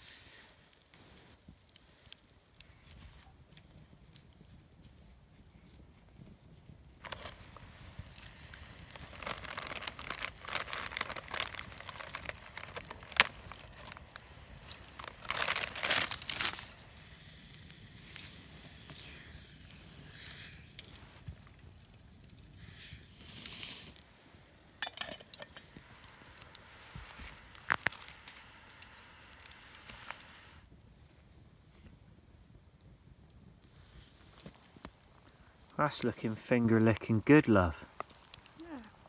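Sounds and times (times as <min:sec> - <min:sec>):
campfire crackling: 0:00.0 - 0:39.0
food packet crinkling: 0:07.0 - 0:19.1, 0:24.8 - 0:30.3.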